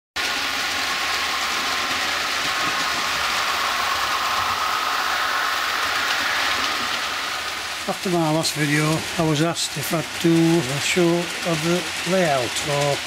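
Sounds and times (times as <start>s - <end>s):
wheels hissing on rails: 0.2s - 13.0s.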